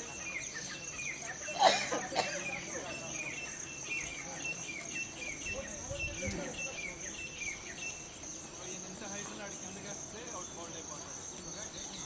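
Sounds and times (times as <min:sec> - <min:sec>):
insects trilling: 0:00.0 - 0:12.0.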